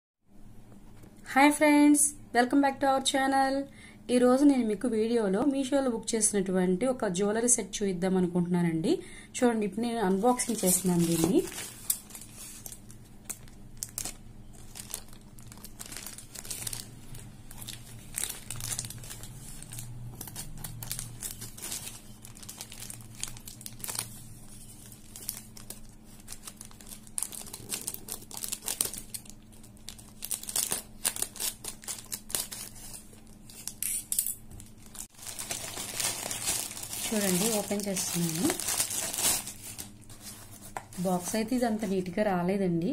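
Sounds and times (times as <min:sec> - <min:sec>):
plastic bag crinkling and tearing: 0:10.2 - 0:41.9.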